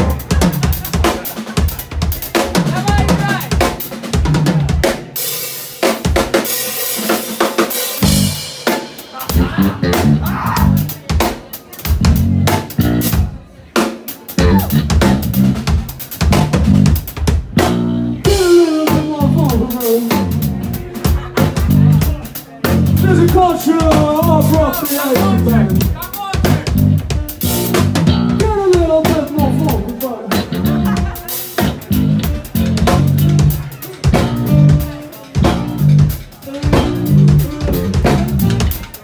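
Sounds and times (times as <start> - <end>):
drum kit hits: 14.4 - 39.0.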